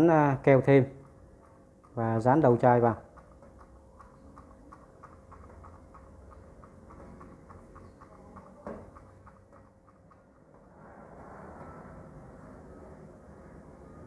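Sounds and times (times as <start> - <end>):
faint steady hum: 0.0 - 14.0
faint irregular clicking: 0.6 - 10.7.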